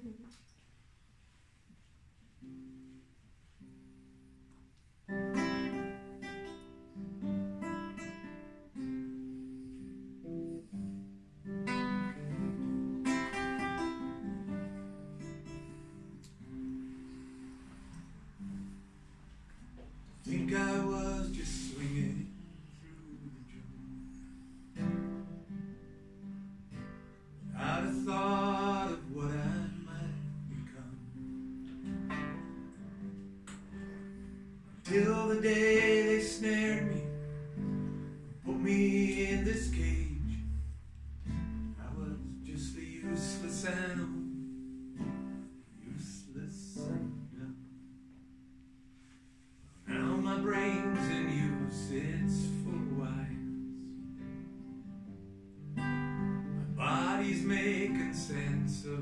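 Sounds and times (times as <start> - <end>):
acoustic guitar playing: 2.0 - 59.0.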